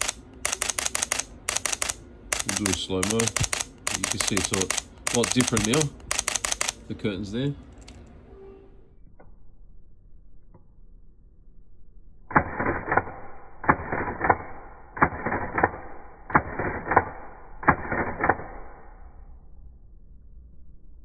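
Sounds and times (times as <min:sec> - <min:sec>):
camera shutter clicking: 0:00.0 - 0:06.8.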